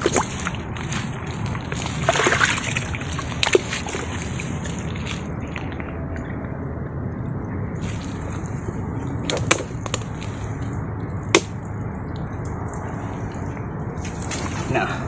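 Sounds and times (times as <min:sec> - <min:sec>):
hand digging in wet mud: 0:00.0 - 0:05.9, 0:07.8 - 0:11.8.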